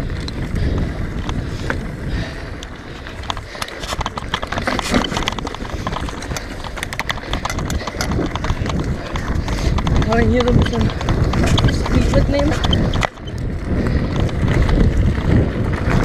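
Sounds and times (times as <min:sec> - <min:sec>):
bike rattling over bumps: 0:00.0 - 0:16.0
tyres running over dirt: 0:00.0 - 0:16.0
wind on microphone: 0:00.0 - 0:16.0.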